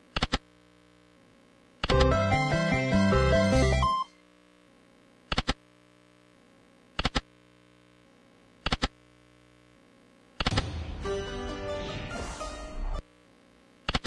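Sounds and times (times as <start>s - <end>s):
faint steady hum: 0.0s - 14.0s
slot machine game music: 1.9s - 4.0s, 11.0s - 13.0s.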